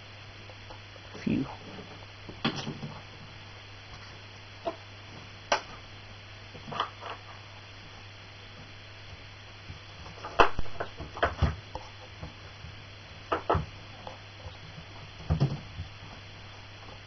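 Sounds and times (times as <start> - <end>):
steady low hum: 0.0 - 17.0
wooden toys knocking: 13.3 - 13.7.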